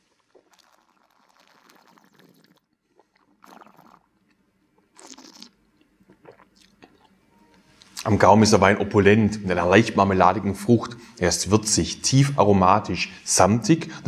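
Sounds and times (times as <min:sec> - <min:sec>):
person slurping wine: 0:00.0 - 0:04.1, 0:04.9 - 0:07.2
mouth sounds: 0:05.0 - 0:07.1.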